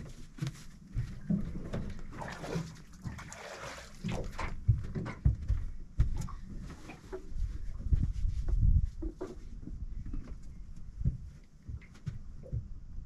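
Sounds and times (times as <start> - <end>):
knocks and thumps in aluminium boat: 0.0 - 13.0
water splashing: 1.3 - 4.6.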